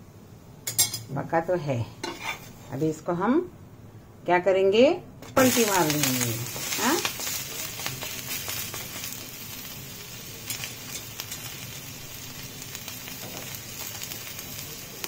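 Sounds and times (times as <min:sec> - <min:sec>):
food sizzling in oil: 0:02.0 - 0:02.9, 0:05.2 - 0:15.0.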